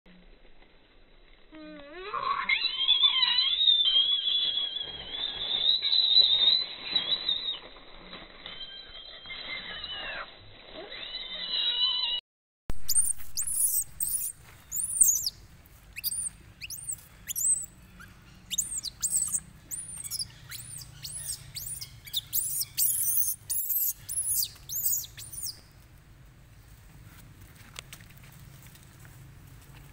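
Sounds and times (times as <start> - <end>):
faint low falling calls: 1.7 - 10.3, 11.0 - 29.9
monkey squealing: 2.0 - 7.6, 8.5 - 12.2, 12.8 - 15.4, 16.0 - 25.6.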